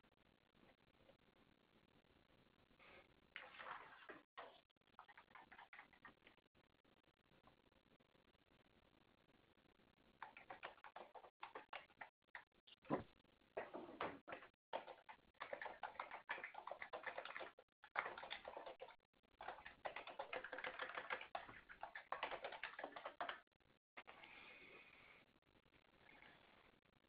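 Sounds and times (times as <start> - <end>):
typing on computer keyboard: 4.4 - 6.2, 10.2 - 12.4, 14.7 - 23.4.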